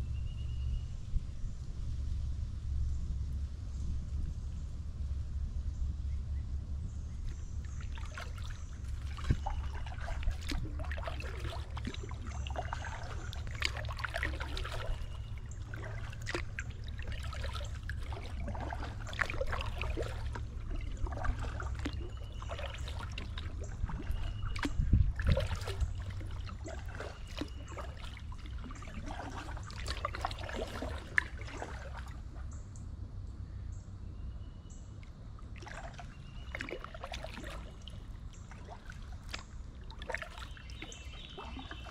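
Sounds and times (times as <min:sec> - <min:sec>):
low steady rumble: 0:00.0 - 0:41.9
paddle splashes in water: 0:07.2 - 0:32.6, 0:35.0 - 0:41.9
water trickling off paddle: 0:07.2 - 0:32.7, 0:35.0 - 0:41.9.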